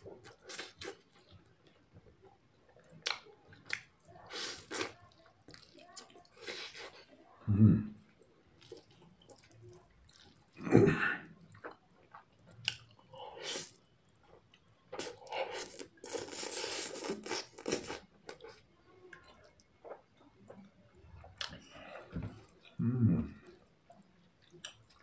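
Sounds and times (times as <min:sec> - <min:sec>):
chewing and smacking: 0:00.0 - 0:07.2, 0:08.1 - 0:10.6, 0:11.3 - 0:25.0
noisy slurp of noodles: 0:04.2 - 0:05.0, 0:13.3 - 0:13.8, 0:15.0 - 0:18.1.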